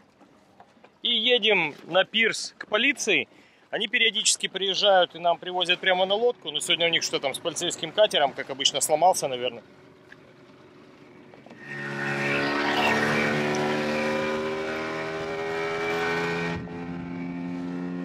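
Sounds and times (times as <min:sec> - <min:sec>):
rushing water: 0:00.0 - 0:11.0
outboard motor running: 0:00.0 - 0:15.9
wind: 0:00.0 - 0:18.0.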